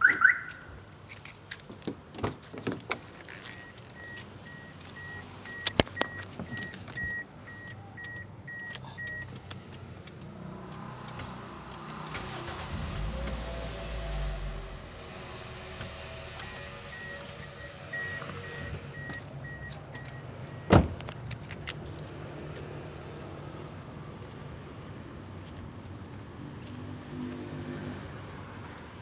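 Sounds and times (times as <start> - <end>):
car alarm chirp: 0.0 - 0.7, 16.5 - 20.9
car engine starting and idling: 3.3 - 22.2
car door clicks and knocks: 20.7 - 21.2.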